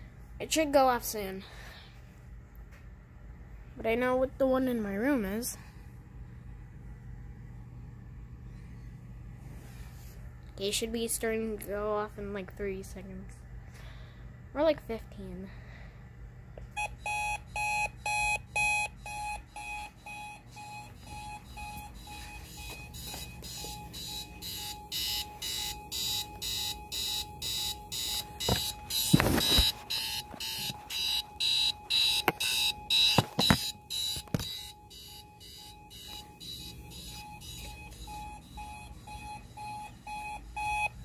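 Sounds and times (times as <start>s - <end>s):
alarm clock beeping: 16.7s - 41.0s.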